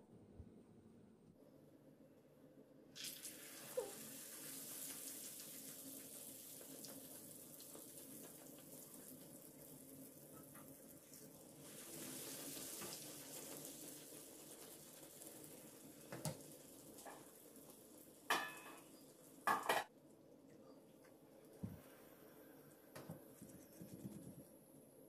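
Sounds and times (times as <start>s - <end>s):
dough sizzling in hot oil: 3.0s - 19.8s.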